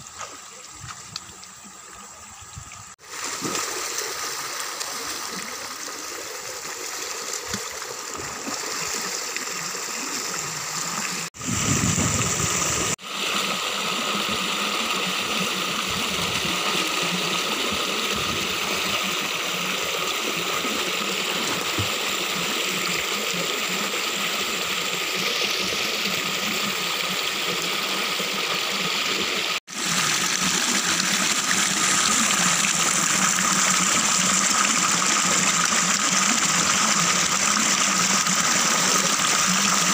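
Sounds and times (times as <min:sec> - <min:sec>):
water splashing: 0:03.0 - 0:23.7
stream rushing over rocks: 0:12.0 - 0:39.9.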